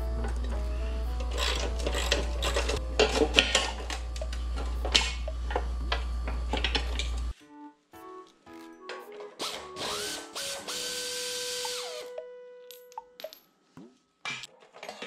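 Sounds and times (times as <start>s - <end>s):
steady low hum: 0.0s - 7.4s.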